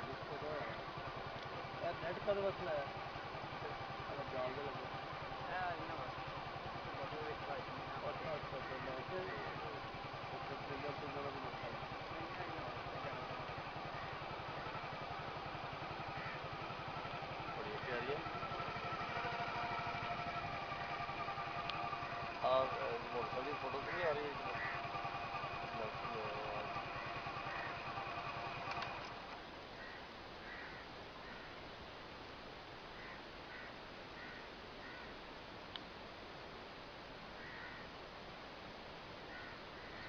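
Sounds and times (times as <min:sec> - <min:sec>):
small engine idling: 0:00.0 - 0:30.7
faint short bird calls: 0:08.5 - 0:10.2, 0:11.3 - 0:22.4, 0:23.6 - 0:29.0, 0:29.7 - 0:31.6, 0:32.9 - 0:35.2, 0:37.4 - 0:38.0, 0:39.2 - 0:40.0.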